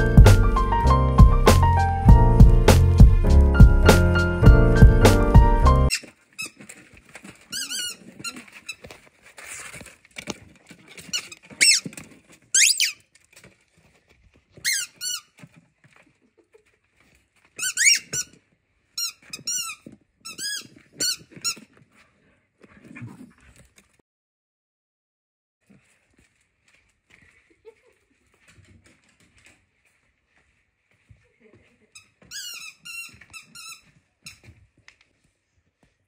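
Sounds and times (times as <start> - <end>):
dog toy squeaking: 5.9 - 6.6, 7.5 - 8.8, 11.1 - 11.9, 12.6 - 13.0, 14.6 - 15.3, 17.6 - 18.4, 19.0 - 21.6, 32.0 - 34.4.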